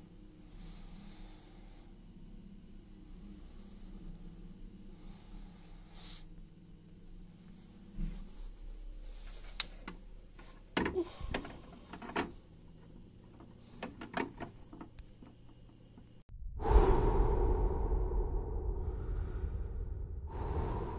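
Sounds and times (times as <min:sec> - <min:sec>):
low steady hum: 0:00.0 - 0:20.9
plastic filter clicking and knocking: 0:13.3 - 0:16.1.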